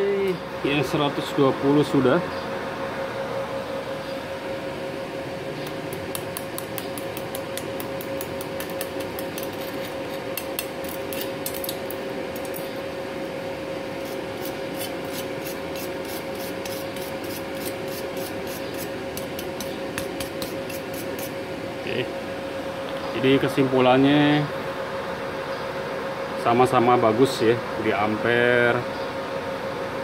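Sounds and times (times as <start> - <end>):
steady hum: 0.0 - 30.0
wire brush scrubbing metal: 14.0 - 21.4.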